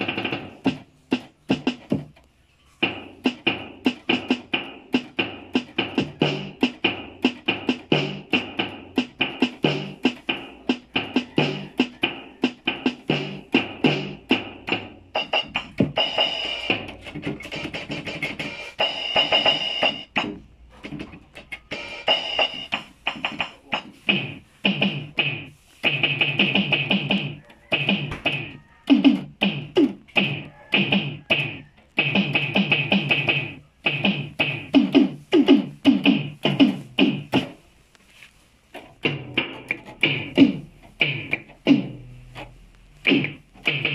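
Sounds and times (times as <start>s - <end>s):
keyboard playing quick runs: 2.9s - 20.3s, 21.6s - 23.8s.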